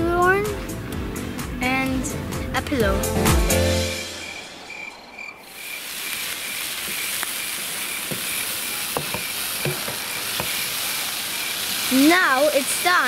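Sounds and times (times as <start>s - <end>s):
food sizzling in a frying pan: 5.4s - 13.0s
spoon stirring against pan: 8.0s - 11.9s.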